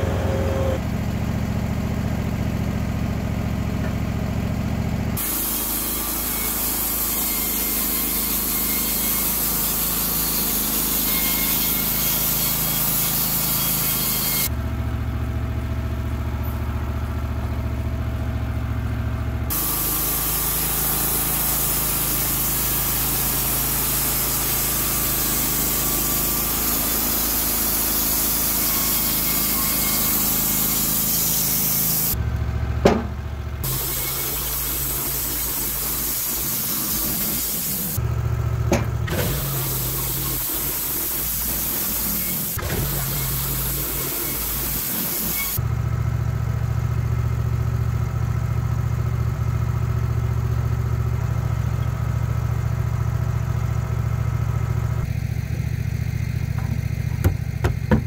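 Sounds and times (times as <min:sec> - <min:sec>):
band sawmill cutting log: 0:00.0 - 0:14.5, 0:19.5 - 0:45.7, 0:54.8 - 0:58.0
sharp knocks: 0:32.8 - 0:33.2, 0:56.5 - 0:58.0.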